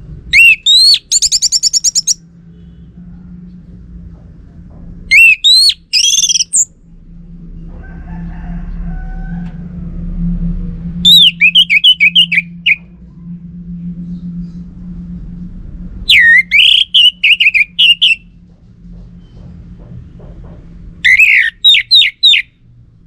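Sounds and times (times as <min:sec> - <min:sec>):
bird singing whistled notes: 0:00.4 - 0:02.2, 0:05.1 - 0:06.7, 0:11.0 - 0:12.9, 0:16.1 - 0:18.2, 0:21.0 - 0:22.5.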